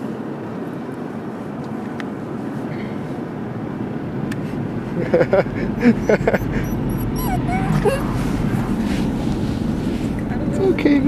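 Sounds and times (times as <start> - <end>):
car cabin road and engine noise: 0.0 - 11.0
puppy whimpering: 6.0 - 8.8.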